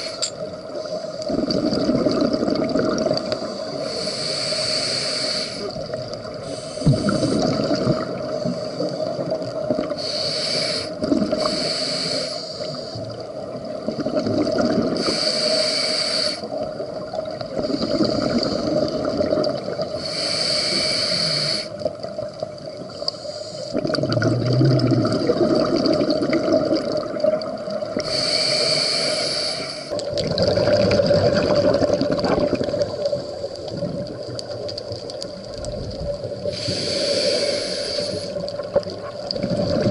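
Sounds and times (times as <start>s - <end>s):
regulator inhale hiss: 0.0s - 1.3s, 3.3s - 7.6s, 8.2s - 13.2s, 15.0s - 16.6s, 19.9s - 21.9s, 22.9s - 23.8s, 28.0s - 30.0s, 32.9s - 33.8s, 36.4s - 38.7s
gurgling exhaust bubbles: 23.8s - 27.4s, 30.1s - 33.0s.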